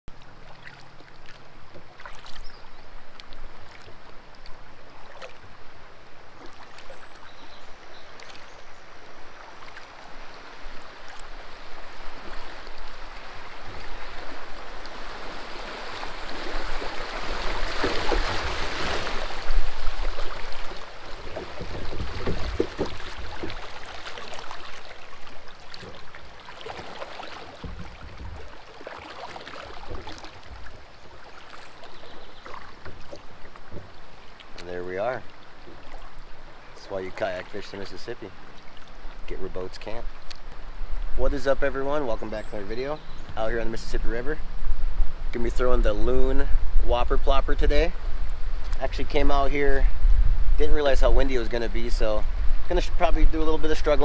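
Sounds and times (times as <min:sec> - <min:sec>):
kayak paddle splashing: 0:00.1 - 0:46.1
river water rushing: 0:00.2 - 0:41.2
wind buffeting microphone: 0:44.4 - 0:54.0.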